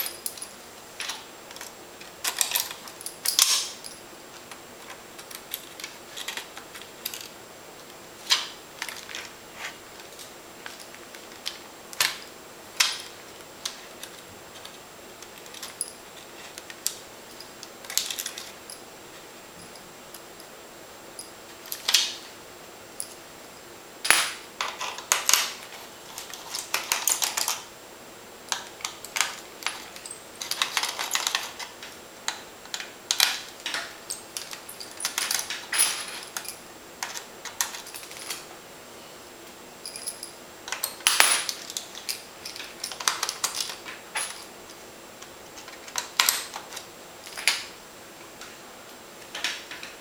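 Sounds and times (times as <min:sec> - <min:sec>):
screws set down on tiled table: 0:40.7 - 0:41.6.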